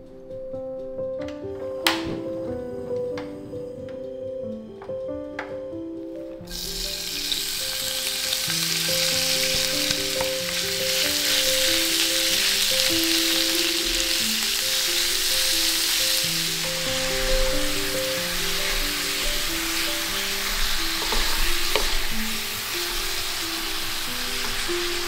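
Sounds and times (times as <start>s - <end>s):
meat sizzling in a skillet: 6.5s - 25.0s
wooden spatula stirring: 9.3s - 25.0s.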